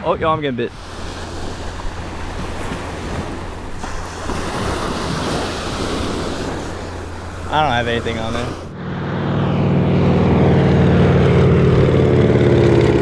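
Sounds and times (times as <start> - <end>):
ocean surf washing onto beach: 0.0 - 8.7
wind rumbling on microphone: 0.0 - 13.0.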